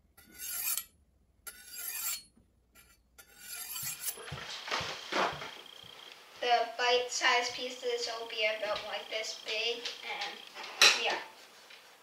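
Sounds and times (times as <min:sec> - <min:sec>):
knife scraping on honing steel: 0:00.2 - 0:04.3.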